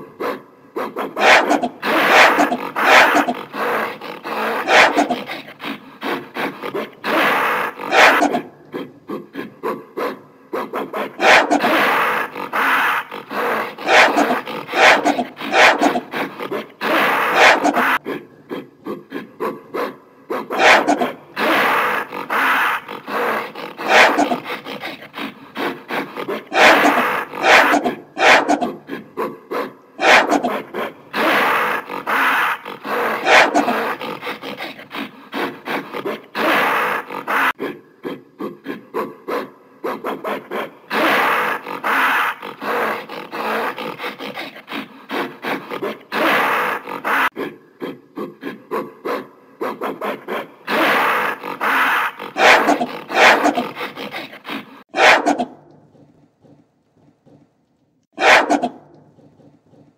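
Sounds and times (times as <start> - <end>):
gorilla calling: 0.8 - 9.3, 10.7 - 18.0, 20.4 - 29.3, 30.0 - 37.6, 40.9 - 47.4, 50.6 - 56.1, 58.2 - 59.9.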